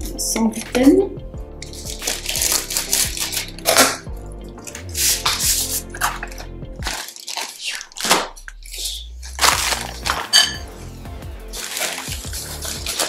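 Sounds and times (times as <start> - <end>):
background music: 0.0 - 13.0
packaging crinkling and rustling: 1.6 - 4.0, 4.6 - 10.5, 11.5 - 13.0.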